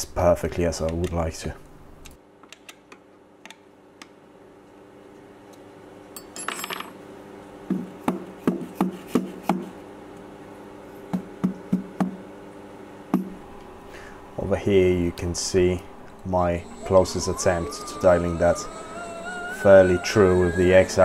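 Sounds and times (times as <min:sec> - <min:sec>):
steady low hum: 0:04.2 - 0:21.0.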